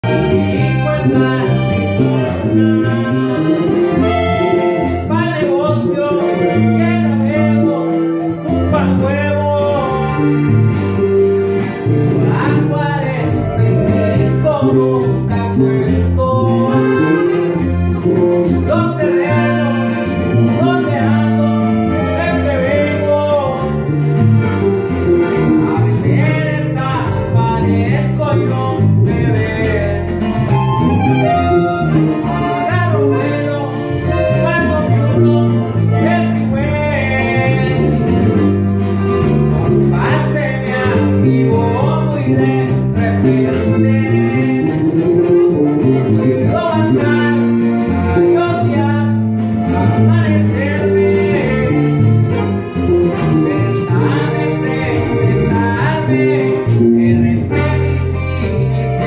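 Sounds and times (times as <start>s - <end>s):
man singing: 0.0s - 10.6s, 11.8s - 24.2s, 25.2s - 38.4s, 39.2s - 59.0s
accordion: 0.0s - 59.0s
acoustic guitar: 0.0s - 59.0s.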